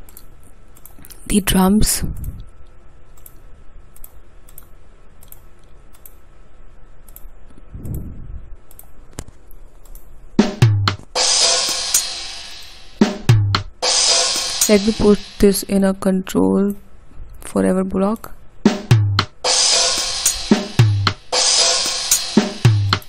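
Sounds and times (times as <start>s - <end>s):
faint mouse clicks: 7.0s - 8.0s
bass drum thump: 10.4s - 11.1s, 13.2s - 13.7s, 18.7s - 19.3s
drum hits: 10.4s - 15.4s, 18.7s - 23.0s
cymbal wash: 11.2s - 13.2s, 13.8s - 15.6s, 19.4s - 23.0s.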